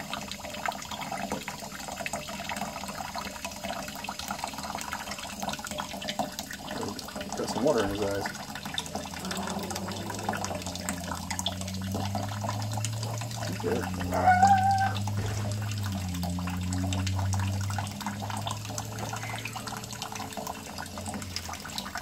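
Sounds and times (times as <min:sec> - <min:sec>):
tap water splashing into sink: 0:00.0 - 0:22.0
parrot bark-like call: 0:14.1 - 0:15.1
steady low hum: 0:14.9 - 0:21.6.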